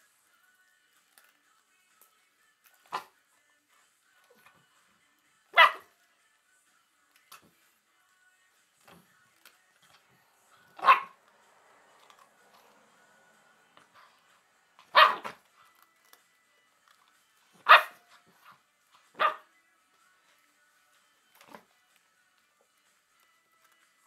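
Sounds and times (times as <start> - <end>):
puppy barking: 2.8 - 3.2, 5.5 - 6.0, 10.6 - 11.2, 14.8 - 15.6, 17.5 - 19.5.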